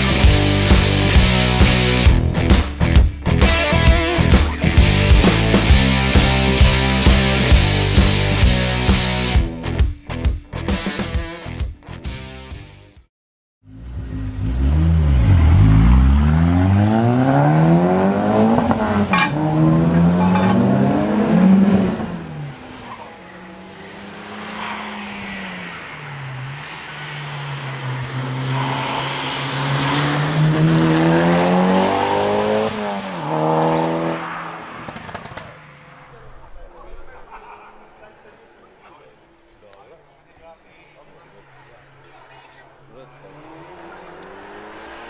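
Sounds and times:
race car engine revving: 13.7s - 36.6s, 42.7s - 45.0s.

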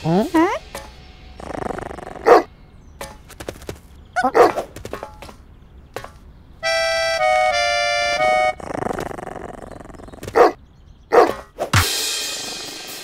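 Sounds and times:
accordion-like chord: 6.6s - 8.6s.

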